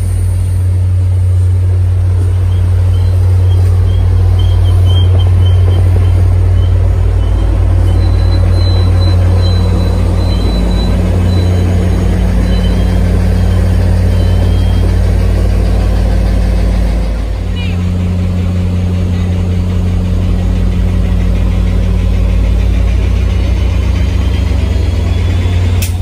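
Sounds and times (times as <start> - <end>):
diesel locomotive engine: 0.0 - 26.0
train wheels rumbling on rails: 0.0 - 26.0
wheels squealing on curve: 2.3 - 15.0.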